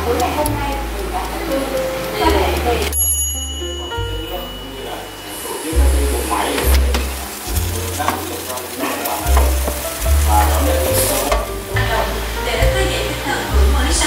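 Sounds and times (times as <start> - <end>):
background music bass line: 0.0 - 14.0
chicken sizzling in air fryer: 0.0 - 14.0
air fryer basket clicks and knocks: 6.6 - 12.0.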